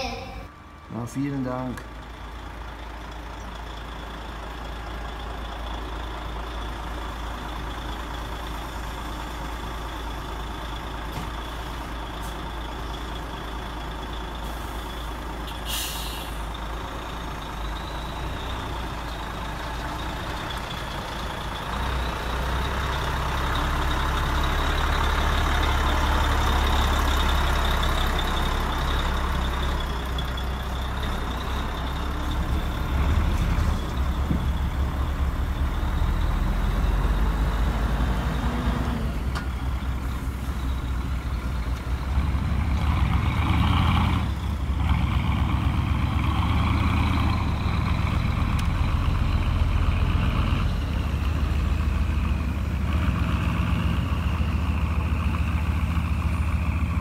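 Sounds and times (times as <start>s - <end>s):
diesel truck engine rumble: 0.0s - 57.0s
air brake hiss: 15.5s - 16.5s.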